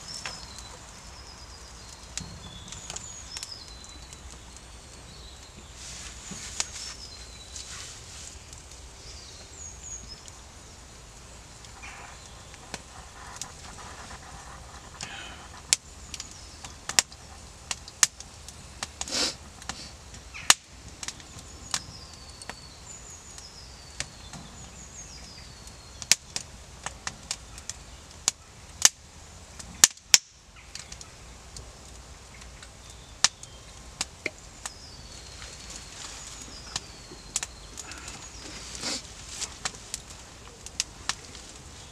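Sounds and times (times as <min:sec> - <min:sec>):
small birds whistling: 0:00.0 - 0:10.4, 0:34.6 - 0:39.1
wood fire crackling and popping: 0:00.0 - 0:41.9.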